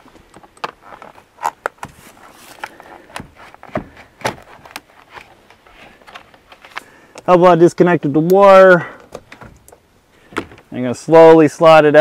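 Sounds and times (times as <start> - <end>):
clicks and knocks of car mirror parts: 2.6 - 6.5, 9.0 - 10.7.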